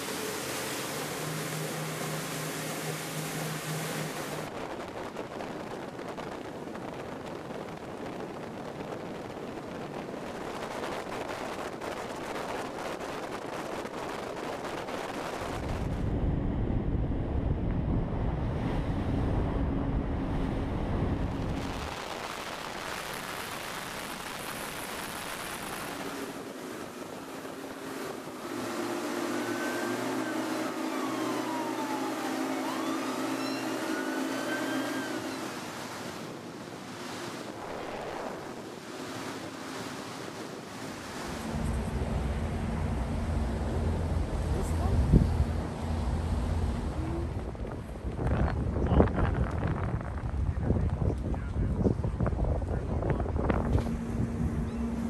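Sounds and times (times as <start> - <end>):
rushing water and spray: 0.0 - 16.1, 21.3 - 48.7
motorboat engine drone: 0.0 - 50.9, 51.7 - 55.0
wind: 0.0 - 55.0
heavy low rumble: 15.4 - 24.8, 41.1 - 55.0.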